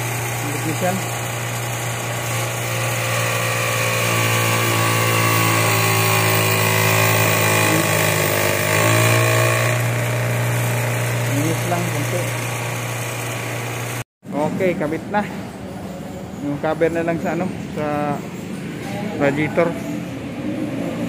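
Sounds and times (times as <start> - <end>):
bench grinder motor hum: 0.0 - 14.0.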